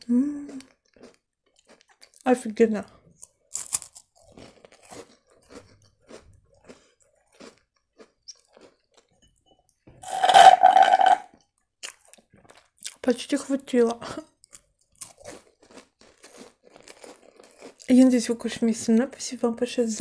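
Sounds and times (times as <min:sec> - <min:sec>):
crunchy cookie chewing: 0:00.0 - 0:02.4, 0:03.0 - 0:09.2, 0:11.3 - 0:13.1, 0:13.9 - 0:18.4
slurping through a straw: 0:10.0 - 0:11.2.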